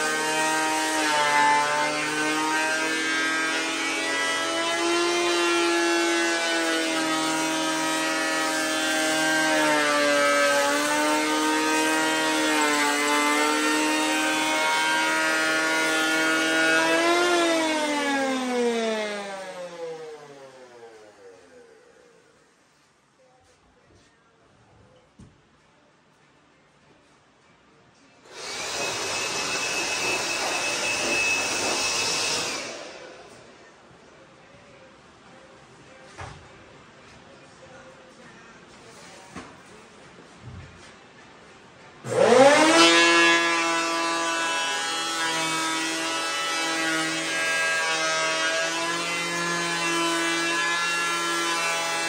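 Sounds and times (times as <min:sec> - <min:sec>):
electric planer whining: 0:00.0 - 0:22.0, 0:28.3 - 0:33.4, 0:42.1 - 0:52.0
handheld blower rushing air: 0:28.3 - 0:33.3.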